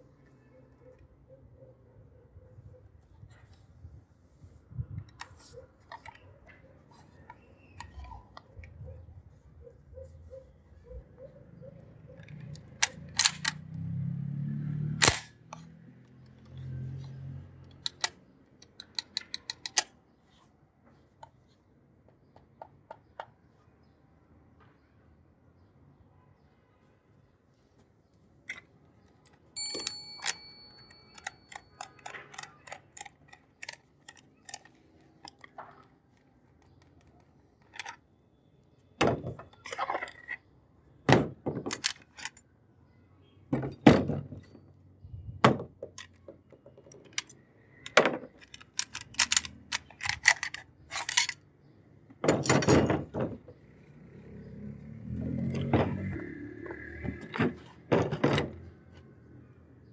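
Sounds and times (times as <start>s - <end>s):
metal gun parts clicking and clinking: 5.1s - 9.0s, 12.0s - 13.7s, 16.4s - 20.0s, 28.4s - 38.4s, 39.0s - 40.5s, 41.1s - 42.6s, 45.5s - 53.6s, 55.6s - 58.8s
metal part ringing: 29.6s - 34.7s.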